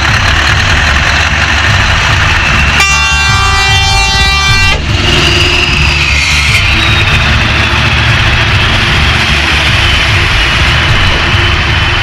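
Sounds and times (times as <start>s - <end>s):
truck engine driving past: 0.0s - 12.0s
multi-tone air horn: 2.7s - 7.3s.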